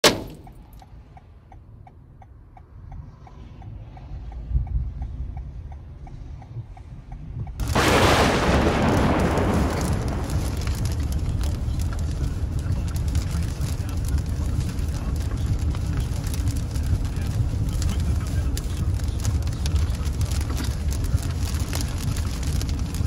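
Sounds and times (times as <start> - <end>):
road rumble inside car: 0.0 - 23.0
heavy rain on car: 7.6 - 23.0.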